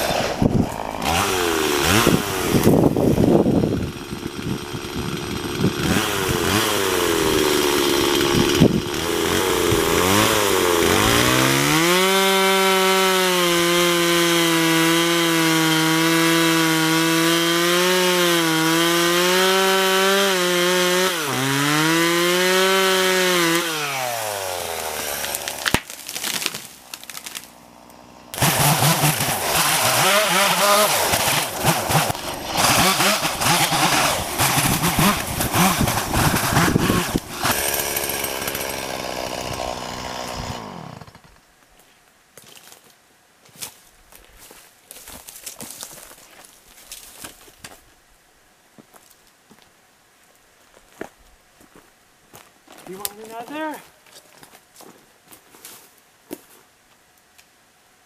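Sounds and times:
chainsaw engine revving: 0.0 - 41.4
tree crashing through brush: 24.4 - 27.6.

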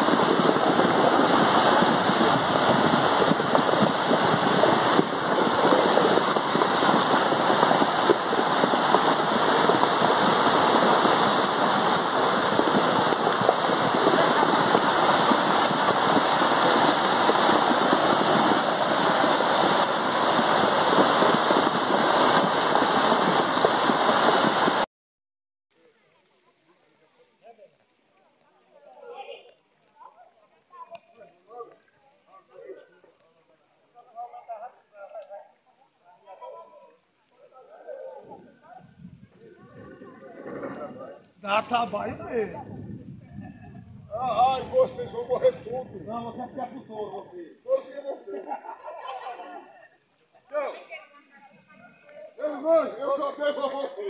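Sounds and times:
heavy rain: 0.0 - 24.9.

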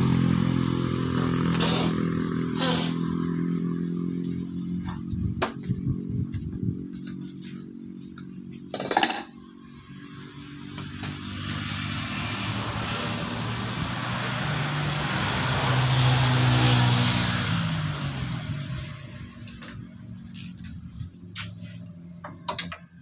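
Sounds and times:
motor vehicle noise: 0.0 - 23.0
sharp metallic clink: 8.7 - 9.4.

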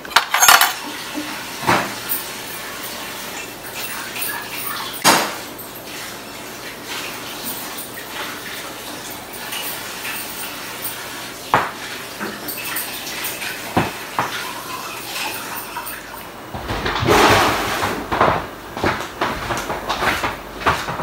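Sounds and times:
crockery and cutlery clinking: 0.0 - 5.8, 11.6 - 16.3.

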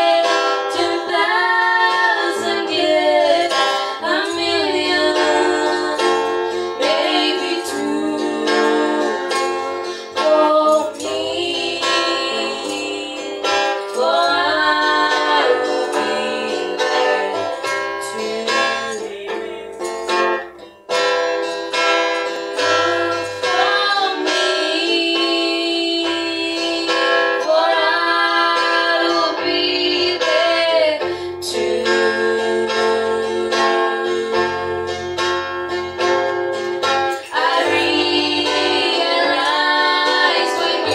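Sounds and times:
women singing a gospel song: 0.0 - 20.0, 23.0 - 35.1, 37.2 - 40.9
strummed guitar: 0.0 - 40.9.

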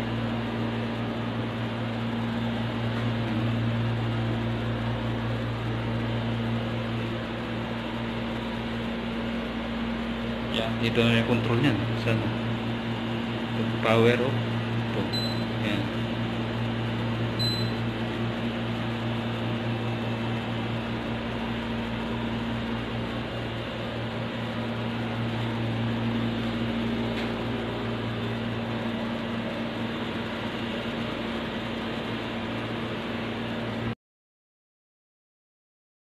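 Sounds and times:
appliance motor humming: 0.0 - 33.9
fan control panel beep: 14.9 - 15.9, 17.3 - 18.1.

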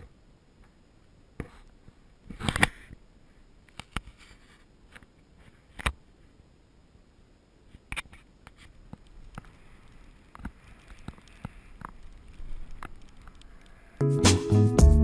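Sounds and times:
music with strong beat: 14.0 - 15.0.

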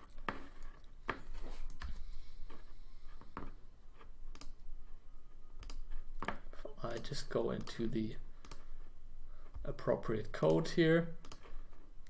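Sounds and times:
mouse and key clicks: 4.3 - 4.6, 5.6 - 6.3, 6.9 - 8.6.

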